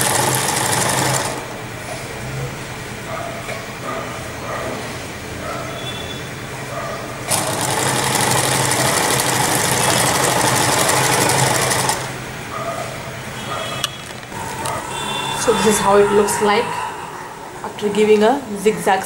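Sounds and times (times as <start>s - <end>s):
sewing machine stitching: 0.0s - 1.4s, 7.3s - 12.1s.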